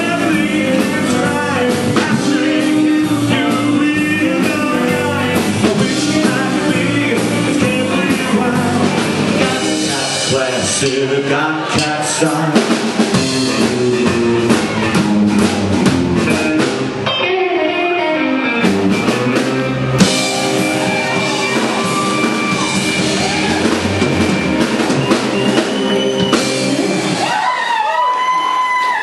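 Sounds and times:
busy drumming: 0.0 - 17.2, 18.5 - 27.7
live rockabilly band playing: 0.0 - 29.0
sliding guitar notes: 13.2 - 27.2.

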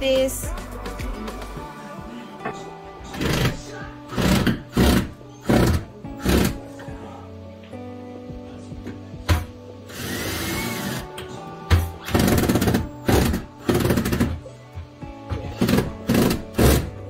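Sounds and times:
background music: 0.0 - 17.0
power tool bursts: 9.9 - 11.1, 15.6 - 16.9.

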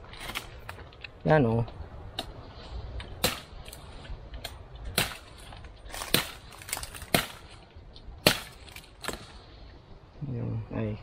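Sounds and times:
branches snapping: 3.0 - 9.4.

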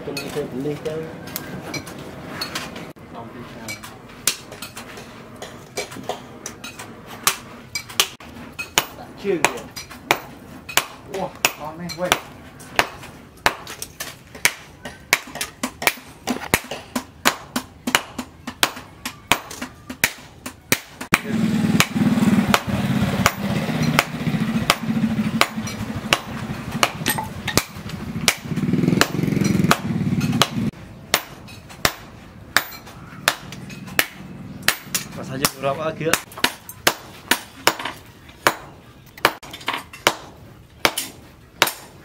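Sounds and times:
hammer striking metal on anvil: 21.8 - 41.9.

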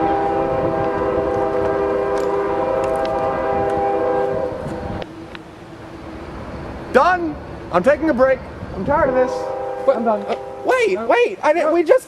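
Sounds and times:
train horn: 0.0 - 5.0, 9.0 - 11.0
passing train rumble: 0.0 - 12.0.

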